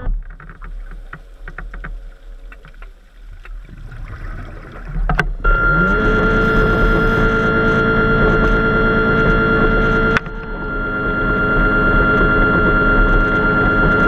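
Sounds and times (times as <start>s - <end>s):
underwater clicks and crackles: 0.0s - 5.5s
low underwater hum: 0.0s - 14.0s
whining drone: 5.1s - 14.0s.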